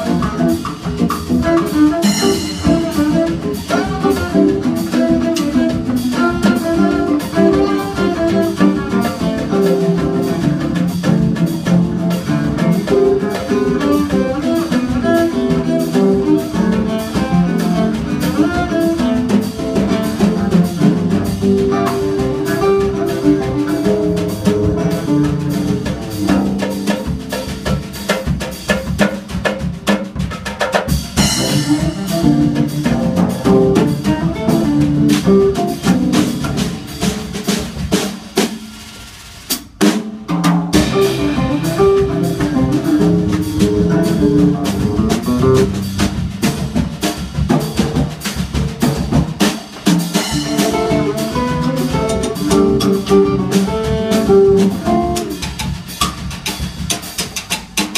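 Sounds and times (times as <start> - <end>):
cello: 0.0 - 26.9, 50.4 - 55.5
drum kit: 0.0 - 57.9.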